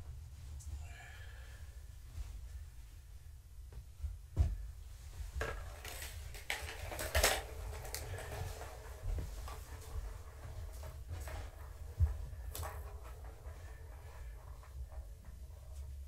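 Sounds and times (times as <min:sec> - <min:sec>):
plastic toy knocking and clattering: 0:05.4 - 0:13.5.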